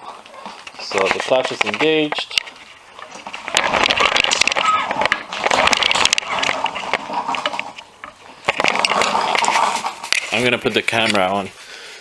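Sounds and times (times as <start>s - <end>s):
mower engine cranking rattling: 0.8s - 11.3s.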